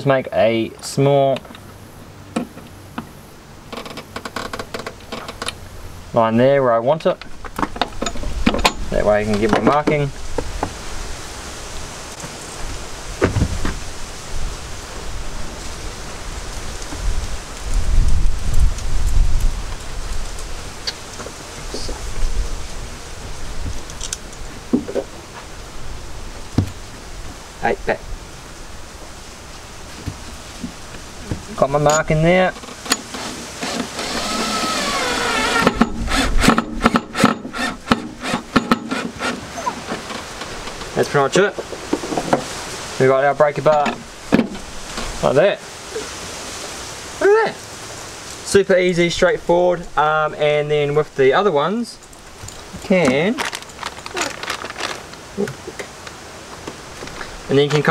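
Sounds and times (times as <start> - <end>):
cordless drill motor whining: 33.1 - 36.6
screw knocking and clicking: 35.6 - 39.2.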